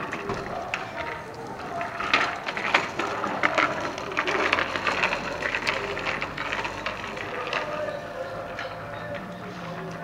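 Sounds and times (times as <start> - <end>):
clicks and rattles: 0.0 - 7.8
bicycle rolling on asphalt: 0.0 - 10.0.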